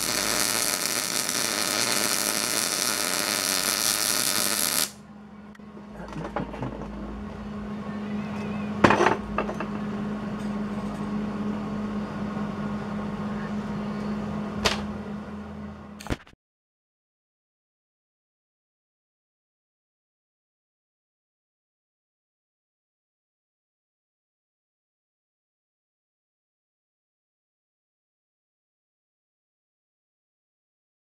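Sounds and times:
welding arc crackling: 0.0 - 5.0
electrical hum: 0.0 - 16.2.

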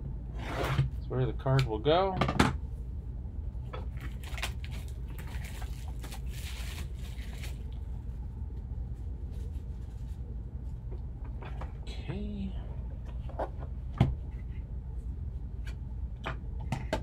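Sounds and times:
steady low hum: 0.0 - 17.0
plastic wrapper crinkling: 4.0 - 7.9.

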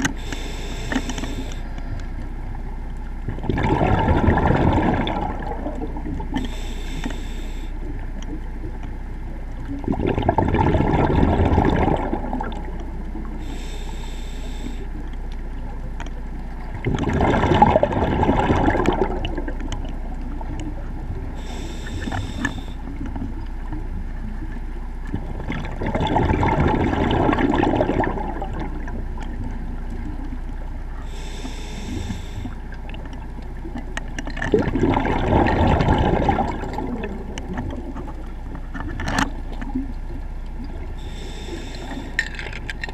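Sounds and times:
diver inhaling through regulator: 0.0 - 2.3, 6.4 - 7.9, 13.3 - 15.0, 21.2 - 23.0, 31.0 - 32.7, 41.0 - 42.6
exhaled bubbles burbling: 3.2 - 6.6, 9.6 - 13.5, 16.6 - 24.4, 25.1 - 42.9.

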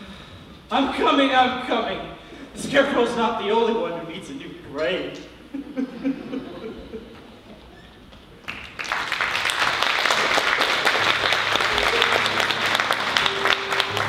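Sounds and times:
audience applauding: 8.3 - 14.0.

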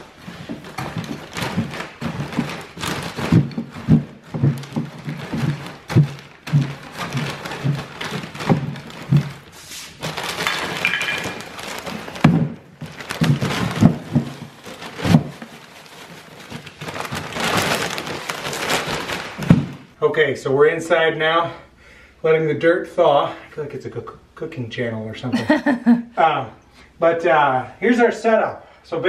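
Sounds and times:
plastic bag rustling: 0.0 - 20.0.

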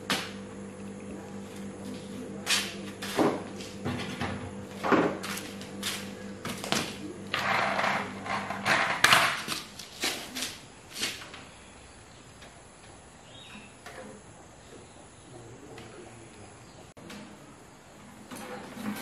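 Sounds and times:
sandals scuffing on concrete: 1.8 - 7.1, 9.4 - 11.4.

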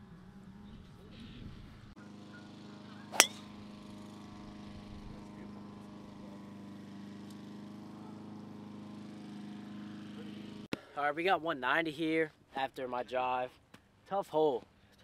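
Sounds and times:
golf driver striking ball: 3.1 - 3.6.

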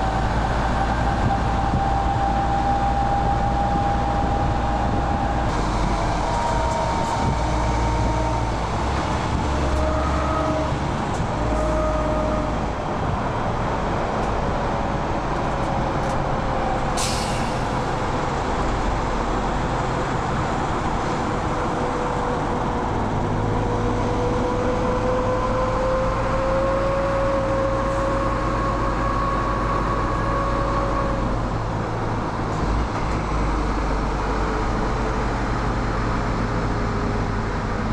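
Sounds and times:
truck diesel engine droning: 0.0 - 37.9
brief air hiss: 17.0 - 17.7.

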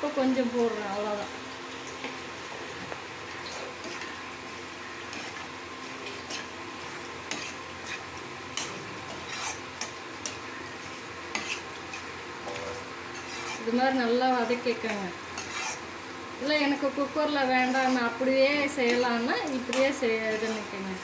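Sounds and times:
frying sizzle: 0.0 - 21.0
spoon scraping metal pan: 5.1 - 10.4, 11.3 - 15.8, 17.4 - 20.7.

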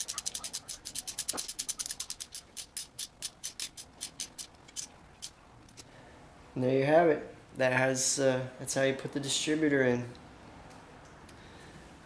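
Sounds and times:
socket ratchet clicking: 0.0 - 5.8.

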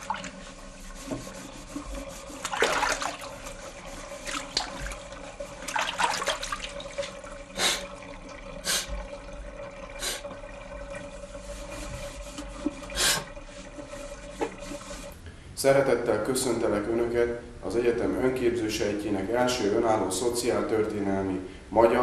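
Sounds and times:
water splashes: 0.0 - 15.1
water sloshing in sink: 0.0 - 15.2.

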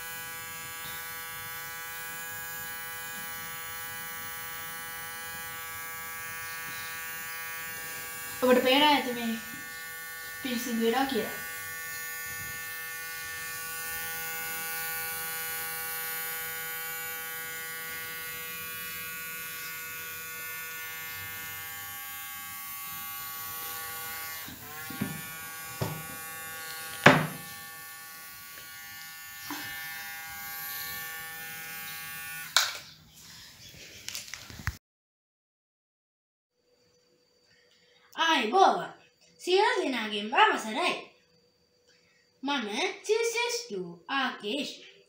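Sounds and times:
small motor whirring: 0.0 - 32.6
knocks: 25.8 - 26.2, 27.0 - 27.5.

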